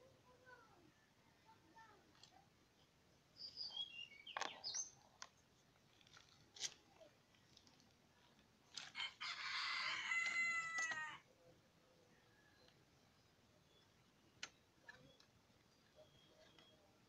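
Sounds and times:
rooster crowing: 9.0 - 11.2.

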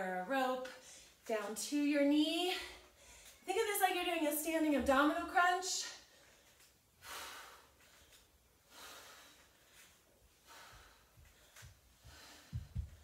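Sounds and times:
woman breathing softly: 6.0 - 13.0
bare feet on wooden floor: 9.3 - 13.0.

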